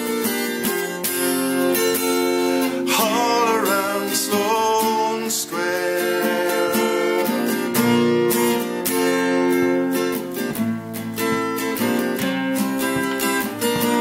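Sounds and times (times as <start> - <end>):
acoustic guitar strummed and picked: 0.0 - 14.0
man singing: 2.8 - 7.7.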